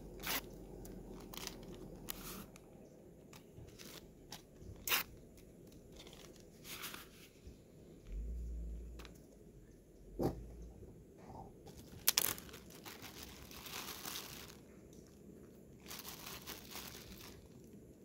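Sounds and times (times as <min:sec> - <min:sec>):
coffee packet crinkling: 0:00.1 - 0:02.7, 0:03.4 - 0:07.2, 0:11.7 - 0:17.8
faint low rush: 0:07.3 - 0:11.6
low rumble: 0:07.7 - 0:11.6.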